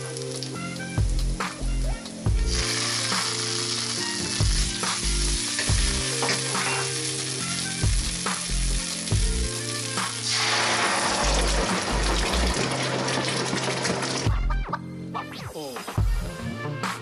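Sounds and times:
garlic sizzling in hot oil: 0:00.0 - 0:01.4, 0:02.5 - 0:14.3.

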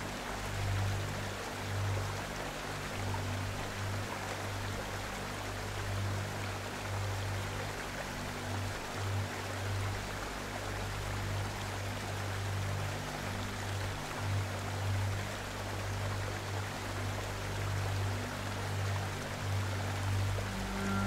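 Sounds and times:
falling water rushing: 0:00.0 - 0:21.0
music with low held notes: 0:00.0 - 0:21.0.

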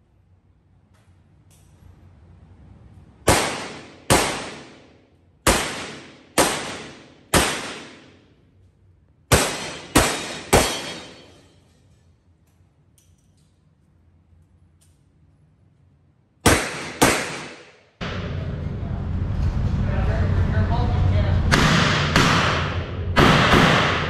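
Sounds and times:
revolver shots echoing: 0:03.3 - 0:08.2, 0:09.3 - 0:11.5, 0:16.5 - 0:17.8, 0:21.5 - 0:24.0.

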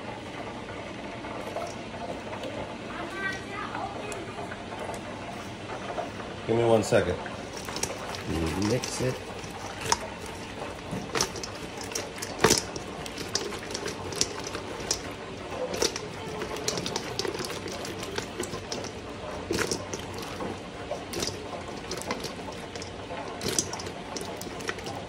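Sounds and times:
chicken wings sloshing in sauce: 0:07.4 - 0:25.0
clicks and knocks on metal bowl: 0:07.5 - 0:25.0.

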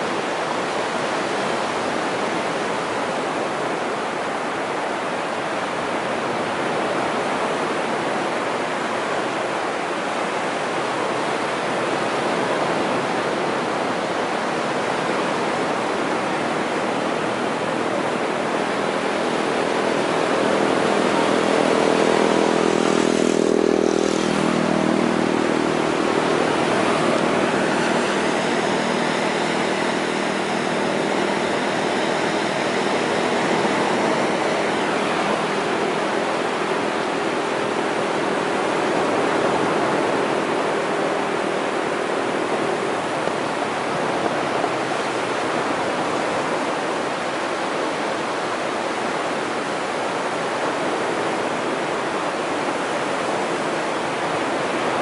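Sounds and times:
surf washing onto beach: 0:00.0 - 0:55.0
vehicle engine passing: 0:18.6 - 0:40.7.

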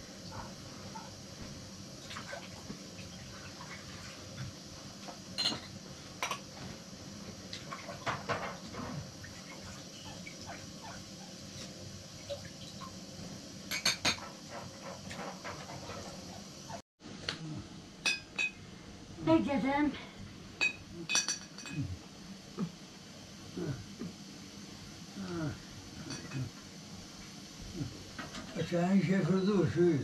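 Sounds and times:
dishes and utensils clinking: 0:05.4 - 0:06.4, 0:13.7 - 0:14.3, 0:20.6 - 0:21.9, 0:26.0 - 0:26.5.

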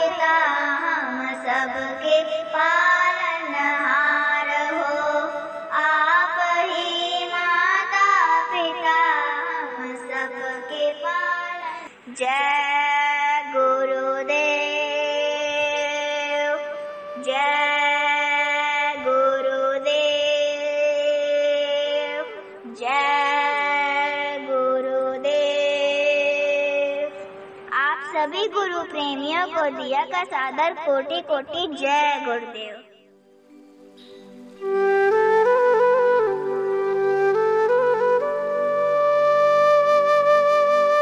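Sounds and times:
girl singing a devotional prayer: 0:00.0 - 0:32.9
instrumental accompaniment: 0:26.1 - 0:41.0.

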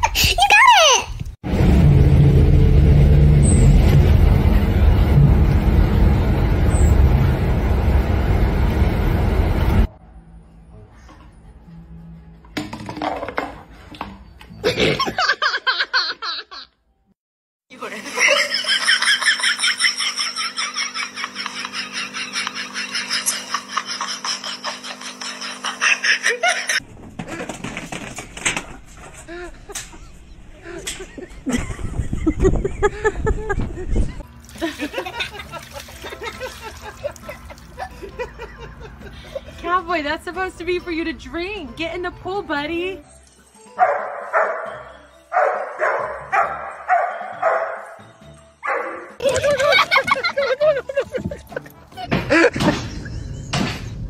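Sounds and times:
person laughing: 0:17.9 - 0:27.5, 0:29.2 - 0:39.6, 0:49.2 - 0:53.7
dog barking: 0:43.8 - 0:48.0, 0:48.6 - 0:49.1.

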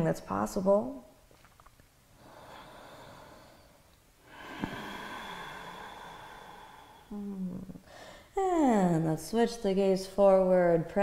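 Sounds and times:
hissing breath through throat: 0:02.2 - 0:07.2.

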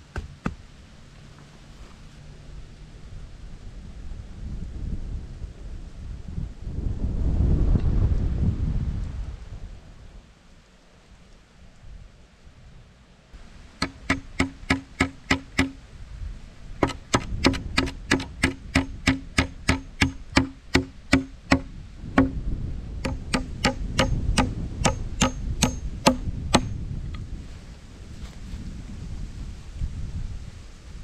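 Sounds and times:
hammer blows on wood with ring: 0:13.8 - 0:15.8, 0:16.8 - 0:22.4, 0:23.0 - 0:26.8.

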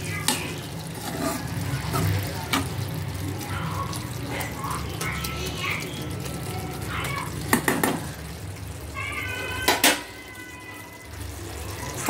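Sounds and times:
spatula knocking against pan: 0:07.5 - 0:08.0.

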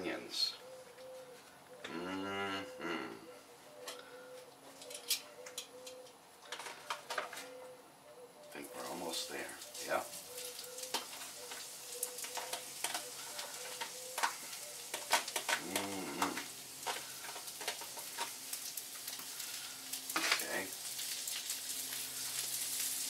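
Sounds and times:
onions sizzling in oil: 0:08.9 - 0:23.0.

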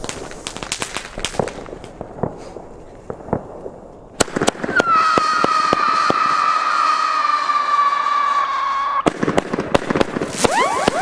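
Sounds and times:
firework shot crack: 0:00.0 - 0:11.0
screaming firework whistle: 0:04.7 - 0:09.1, 0:10.4 - 0:11.0
firework fuse sputtering: 0:10.1 - 0:11.0.

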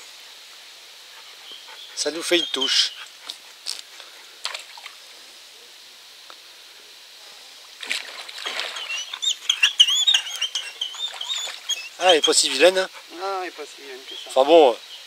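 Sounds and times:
bird singing: 0:01.4 - 0:03.1, 0:08.6 - 0:12.9, 0:13.7 - 0:15.0
fish splashing at water surface: 0:07.8 - 0:09.2.

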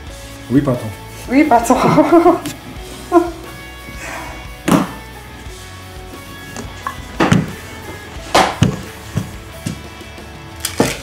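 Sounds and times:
background music: 0:00.0 - 0:11.0
rolling pin knocking on worktop: 0:07.2 - 0:07.6, 0:08.3 - 0:09.8.

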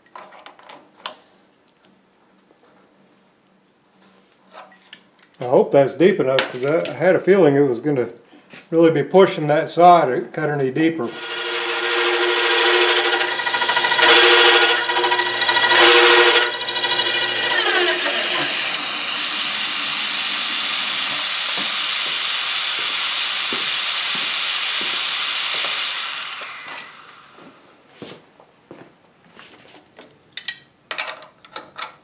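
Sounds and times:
saw cutting metal ringing: 0:11.1 - 0:27.4
machine spinning down: 0:11.1 - 0:27.7.

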